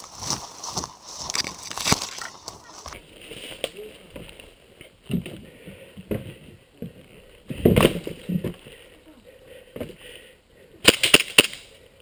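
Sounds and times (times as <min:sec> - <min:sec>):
footsteps in dry leaves: 0:00.0 - 0:04.0.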